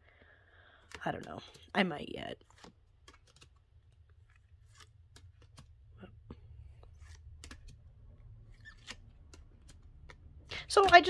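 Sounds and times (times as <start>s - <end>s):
cards clicking while flipped: 0.8s - 1.7s, 2.4s - 5.9s, 6.8s - 11.0s.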